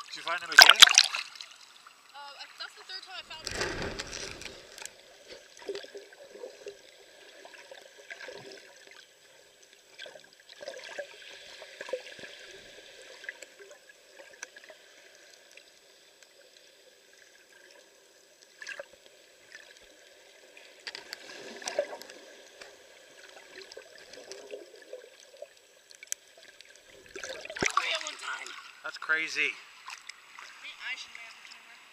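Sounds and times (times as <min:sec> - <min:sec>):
small underwater clicks and knocks: 0:03.3 - 0:06.0, 0:20.7 - 0:28.0, 0:29.8 - 0:30.2.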